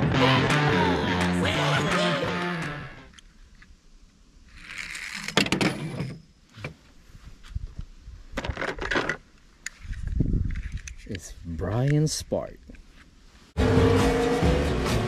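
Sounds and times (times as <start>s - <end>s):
toy car rolling on wooden board: 4.5s - 6.2s.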